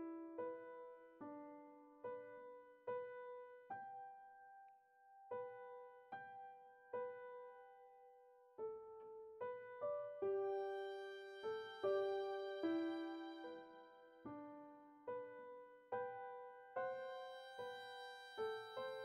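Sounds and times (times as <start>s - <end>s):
slow keyboard melody: 0.0s - 19.0s.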